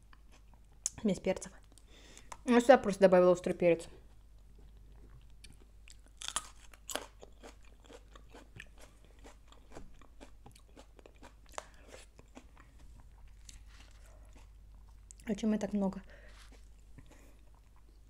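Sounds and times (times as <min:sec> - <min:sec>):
person chewing crunchy food: 0:04.0 - 0:15.2, 0:16.2 - 0:18.0.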